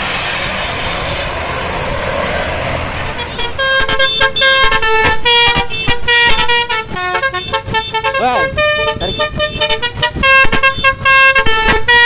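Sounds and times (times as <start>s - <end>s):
bus horn honking a melody: 3.0s - 12.0s.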